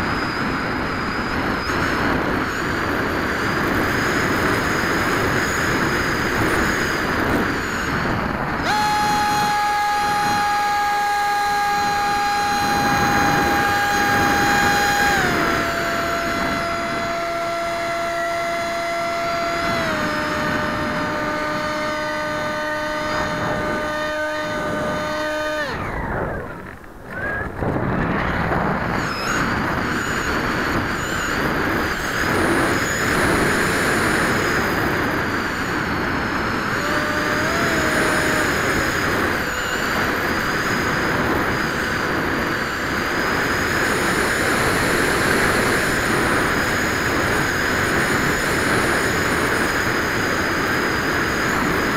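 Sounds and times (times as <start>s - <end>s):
high-pitched electric motor whine: 0.0s - 51.9s
rushing wind noise: 0.0s - 51.9s.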